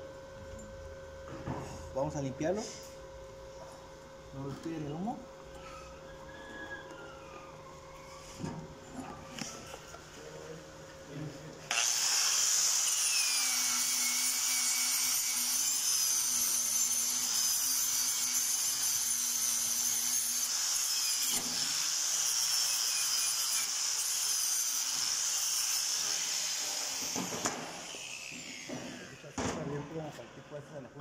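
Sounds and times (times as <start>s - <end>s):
angle grinder wire wheel on steel: 11.7s - 27.2s.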